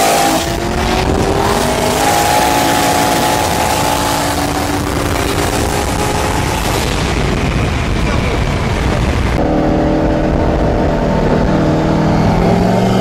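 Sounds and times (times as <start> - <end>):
car engine at full throttle: 0.0 - 13.0
road and wind noise: 0.0 - 13.0.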